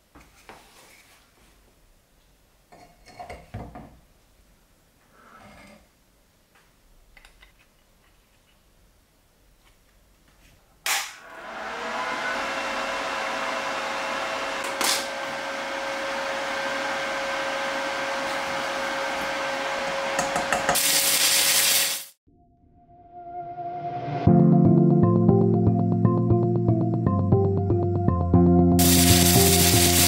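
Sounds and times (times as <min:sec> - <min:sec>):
welding arc crackling: 0:20.7 - 0:22.2, 0:28.8 - 0:30.0.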